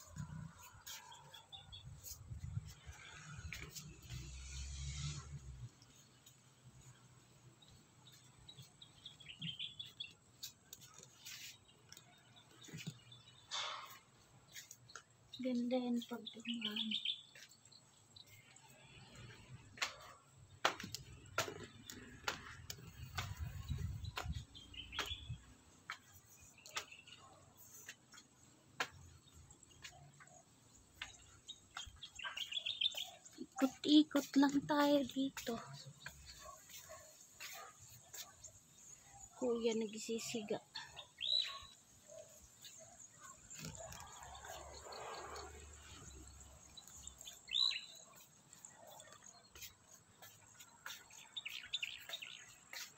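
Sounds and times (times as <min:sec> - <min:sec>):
high bird chirps: 0:22.9 - 0:27.4, 0:31.0 - 0:38.2, 0:39.7 - 0:44.9, 0:45.6 - 0:52.9.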